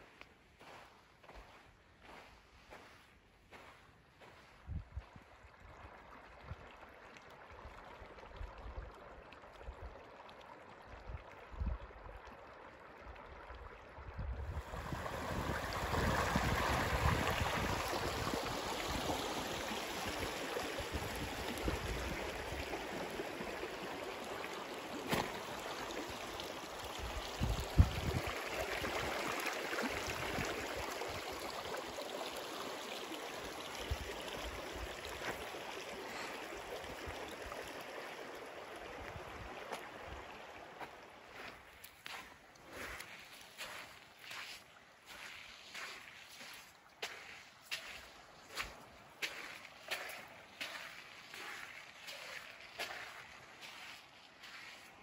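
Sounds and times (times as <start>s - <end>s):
river water rushing over rocks: 14.6s - 38.8s.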